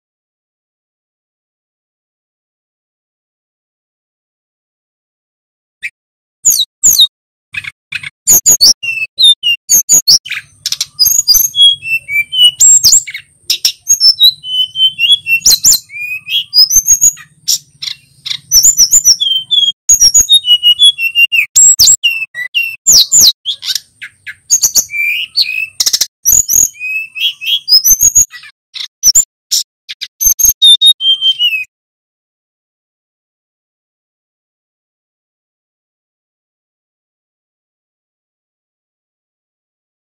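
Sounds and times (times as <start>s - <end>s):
flycatcher singing: 6.5s - 31.7s.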